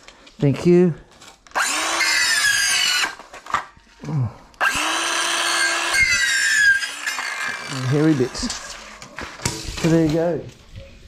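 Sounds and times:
circular saw cutting bamboo: 0:01.6 - 0:03.2, 0:04.6 - 0:09.4.

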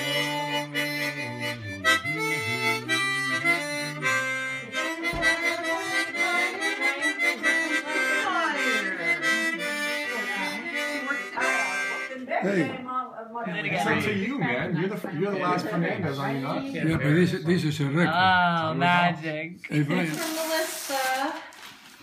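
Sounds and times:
harmonica playing chords: 0:00.0 - 0:12.8.

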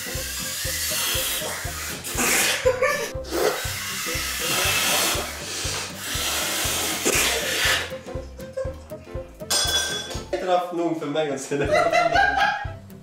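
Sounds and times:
hissing blowing into balloon: 0:00.0 - 0:08.0
background music with beat: 0:00.0 - 0:10.5, 0:11.6 - 0:13.0.

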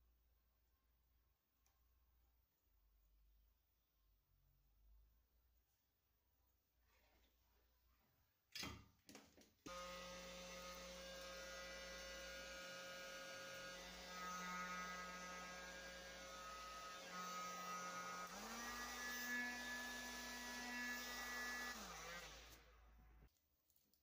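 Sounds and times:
heat gun motor hum: 0:09.7 - 0:22.6.

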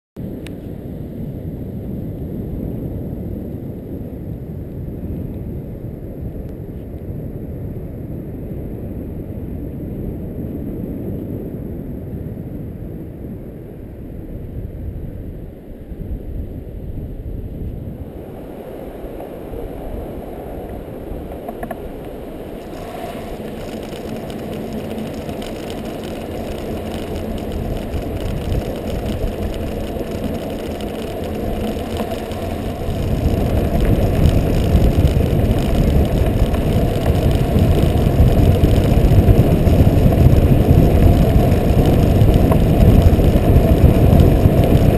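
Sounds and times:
wind rushing over microphone: 0:00.2 - 0:44.9
kite buggy rolling over sand: 0:17.5 - 0:44.9
fine rapid rattle: 0:22.6 - 0:44.9.

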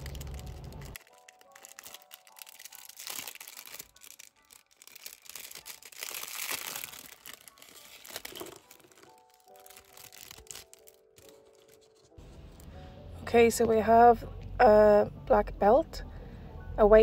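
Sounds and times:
plastic bag crinkling: 0:00.0 - 0:12.1
soft background music: 0:00.0 - 0:17.0.

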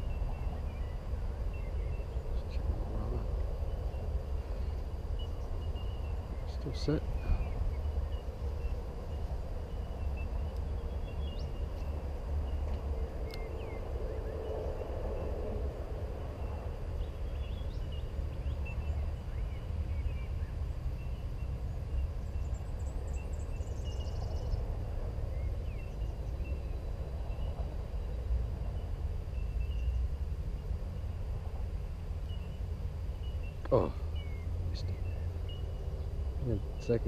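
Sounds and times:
bird trill: 0:00.0 - 0:15.4
faint bird chirps: 0:00.0 - 0:15.5, 0:32.2 - 0:37.0
steady low rumble: 0:00.0 - 0:37.0.

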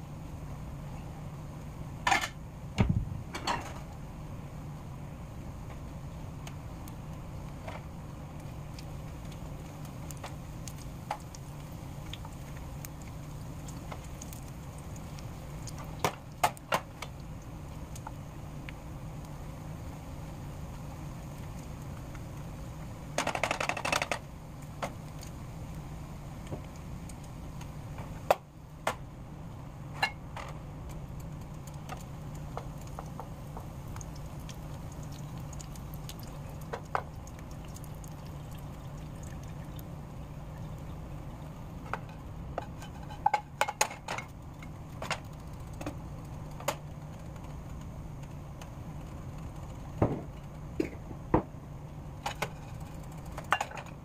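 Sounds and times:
bacon sizzling in a pan: 0:06.6 - 0:28.4, 0:31.0 - 0:41.9.

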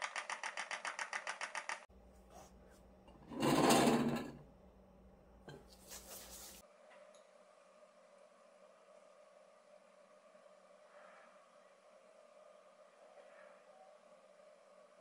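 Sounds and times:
glass cups scraping on table: 0:03.1 - 0:04.4.

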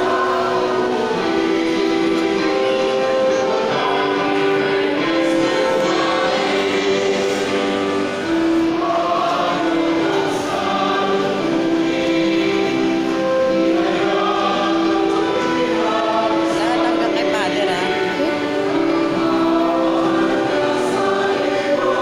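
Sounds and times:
choir singing a slow hymn: 0:00.0 - 0:22.0.

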